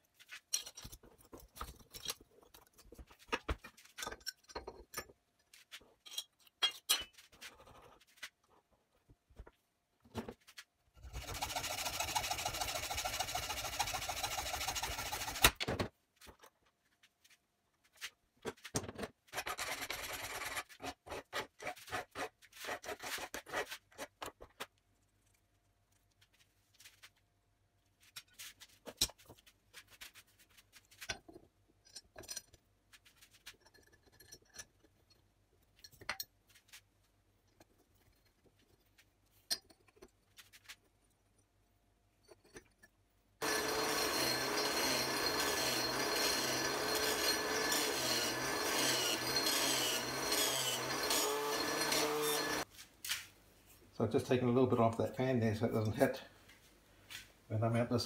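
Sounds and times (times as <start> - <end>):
hacksaw cutting steel: 11.1 - 15.6, 43.4 - 52.7.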